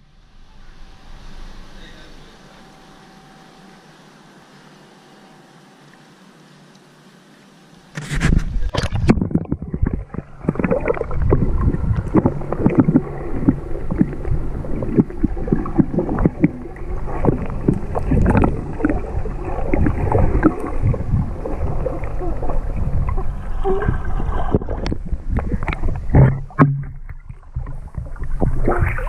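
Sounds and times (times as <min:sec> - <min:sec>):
muffled underwater water churning: 0:00.0 - 0:29.0
small underwater crackles and knocks: 0:07.9 - 0:29.0.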